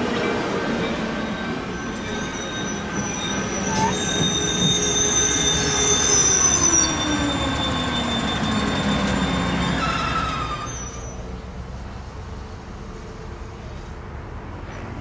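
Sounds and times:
passing train tone sliding down: 0:00.0 - 0:11.4
train wheels squealing on rails: 0:00.0 - 0:11.4.

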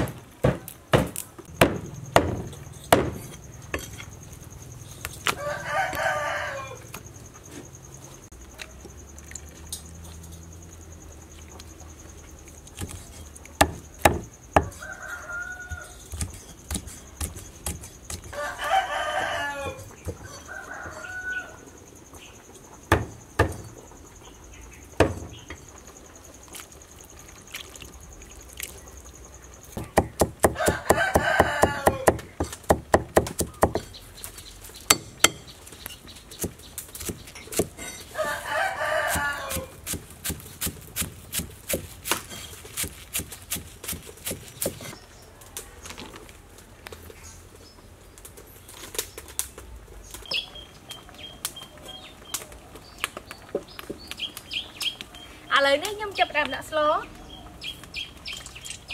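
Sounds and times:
cleaver chopping on wooden board: 0:00.0 - 0:03.9, 0:13.6 - 0:14.8, 0:29.8 - 0:33.9, 0:34.9 - 0:35.5, 0:39.1 - 0:44.9
rooster crowing: 0:05.2 - 0:07.0, 0:14.6 - 0:16.1, 0:18.3 - 0:21.8, 0:30.4 - 0:32.2, 0:38.1 - 0:39.9.

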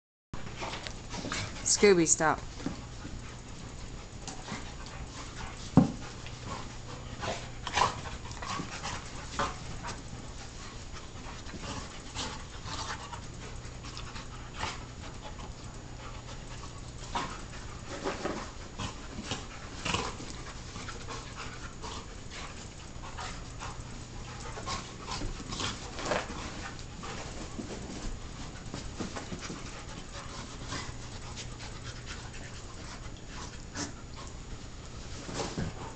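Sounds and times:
dogs panting: 0:00.4 - 0:35.9
dogs scuffling and mouthing: 0:00.4 - 0:35.9.

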